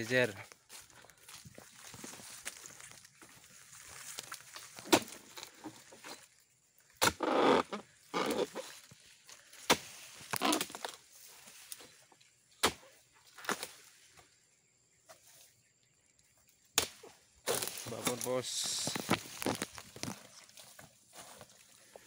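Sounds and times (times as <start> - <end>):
chisel chopping palm stalks: 4.7 - 5.3, 7.0 - 7.2, 9.5 - 11.0, 12.6 - 13.8, 16.8 - 20.1
frond rustle: 17.5 - 22.0.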